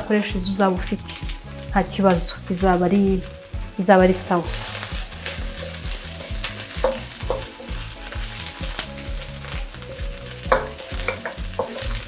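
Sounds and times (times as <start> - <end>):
vegetables sizzling in oil: 0.0 - 12.0
wooden spatula scraping a pan: 4.1 - 12.0.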